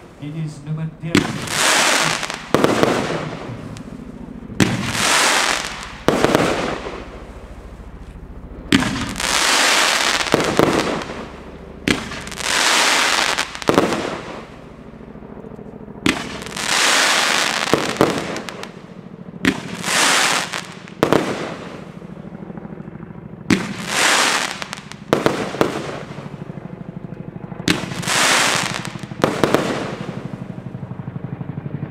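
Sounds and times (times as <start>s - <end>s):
fireworks bursting with bangs: 1.1s - 8.0s, 8.7s - 14.7s, 16.0s - 22.0s, 23.5s - 26.4s, 27.6s - 30.5s
crackling hiss of bursting fireworks: 1.2s - 4.0s, 4.6s - 8.0s, 8.7s - 14.6s, 16.1s - 18.8s, 19.4s - 22.0s, 23.5s - 26.3s, 27.7s - 30.4s.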